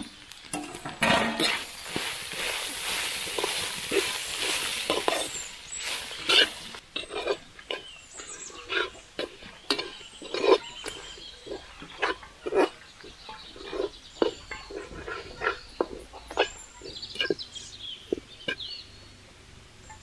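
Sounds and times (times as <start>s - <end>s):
spices frying in oil: 0.0s - 6.8s
ladle scraping pan: 0.6s - 17.4s.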